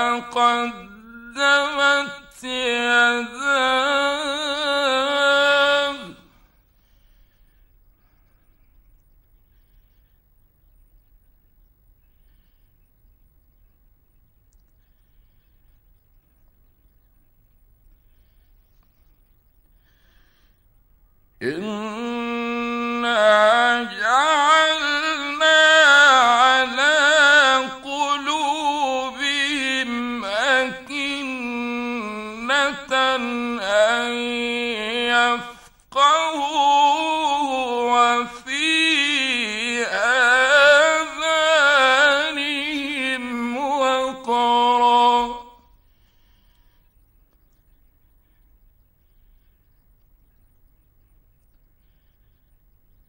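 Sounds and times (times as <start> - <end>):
man chanting melodically: 0.0 - 6.5, 21.4 - 45.8.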